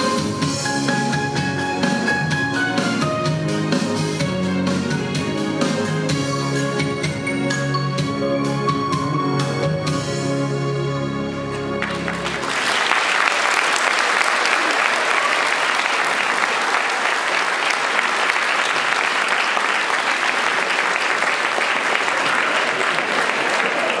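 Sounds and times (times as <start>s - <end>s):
closing music: 11.3s - 12.8s
audience applauding: 11.8s - 24.0s.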